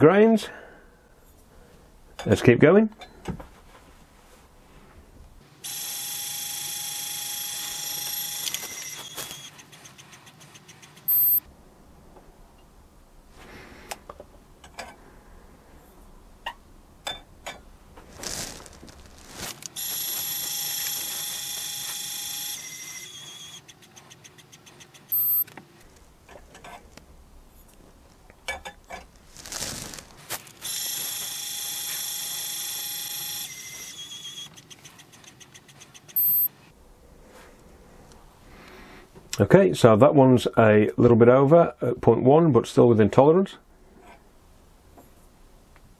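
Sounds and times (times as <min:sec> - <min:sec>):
high motor whine: 0:05.6 - 0:09.6, 0:19.8 - 0:23.7
short high beep: 0:11.1 - 0:11.4, 0:25.1 - 0:25.4, 0:36.2 - 0:36.5.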